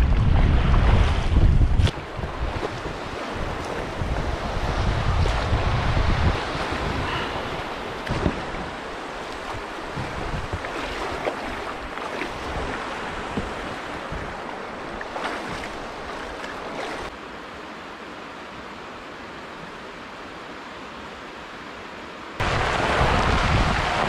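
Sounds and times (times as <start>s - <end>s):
wind buffeting microphone: 0.0s - 17.1s, 22.4s - 24.0s
river water splashing: 0.5s - 24.0s.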